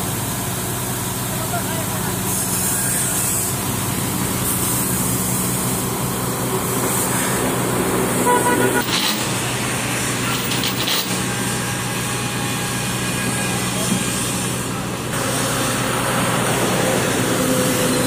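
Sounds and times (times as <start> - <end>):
vehicle engine idling: 0.0 - 18.0
short horn toot: 8.2 - 9.2.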